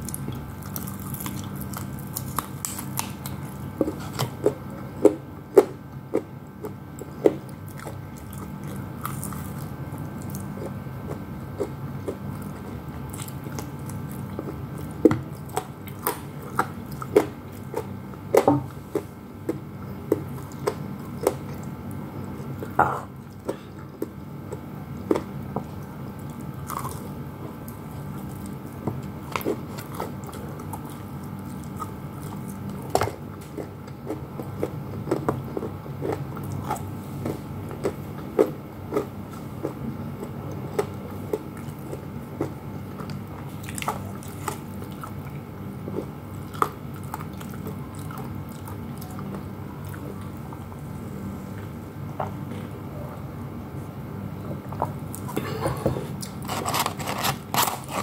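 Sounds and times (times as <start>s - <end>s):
crunching fried chicken: 0.0s - 50.7s, 56.1s - 58.0s
quiet chewing: 0.0s - 58.0s.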